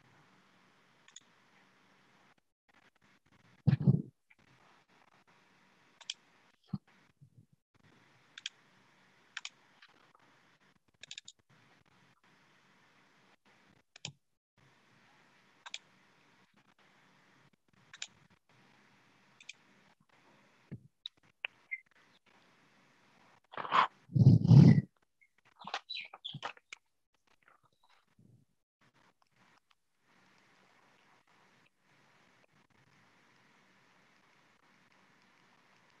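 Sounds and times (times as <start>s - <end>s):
computer mouse clicks: 1.0s - 1.3s, 6.0s - 6.2s, 8.3s - 8.6s, 9.3s - 10.0s, 11.0s - 11.4s, 13.9s - 14.2s, 15.6s - 15.9s, 17.9s - 18.2s, 19.4s - 19.6s.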